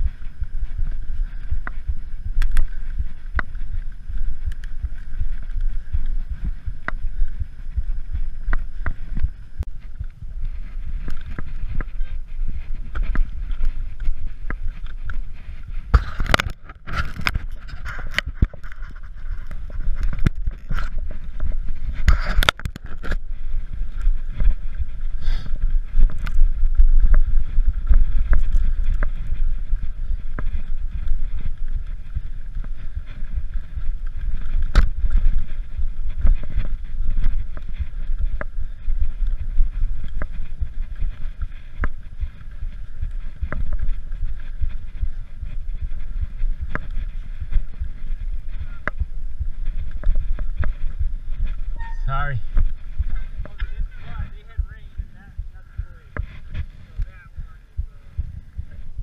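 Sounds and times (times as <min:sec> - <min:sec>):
bike clicks and rattles: 0:00.0 - 0:57.2
bike tyres rumbling on trail: 0:00.0 - 0:59.0
wind on camera: 0:00.0 - 0:59.0.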